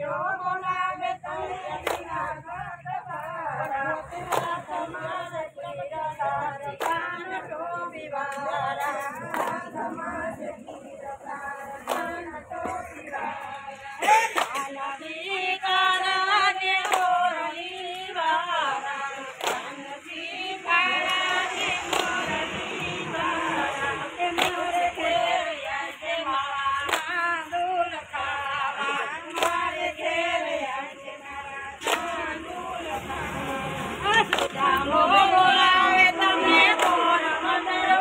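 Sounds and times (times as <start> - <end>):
women singing together: 0.0 - 38.0
hands clapping in time: 1.2 - 2.4, 3.1 - 5.1, 6.3 - 7.6, 8.2 - 11.0, 11.7 - 14.9, 16.3 - 18.1, 18.8 - 20.1, 21.0 - 30.1, 31.7 - 33.0, 33.8 - 37.2.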